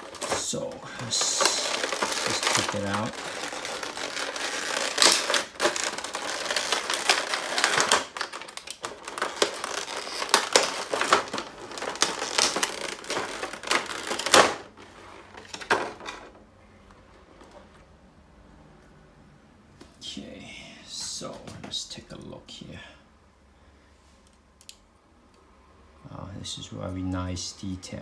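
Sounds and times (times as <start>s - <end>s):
plastic blister tray crackling: 0.0s - 16.4s.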